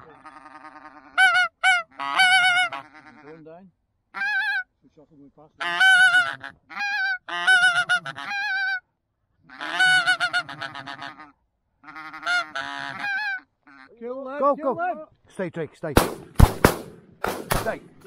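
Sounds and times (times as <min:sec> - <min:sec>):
geese honking: 0:00.0 - 0:03.5, 0:04.1 - 0:04.7, 0:05.6 - 0:08.8, 0:09.5 - 0:14.1.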